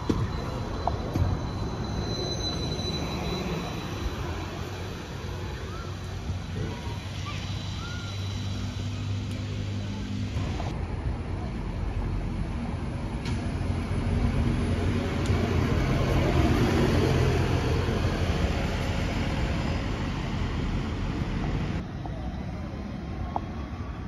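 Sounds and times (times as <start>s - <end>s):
buses driving past: 0.0s - 24.0s
traffic noise: 0.0s - 24.0s.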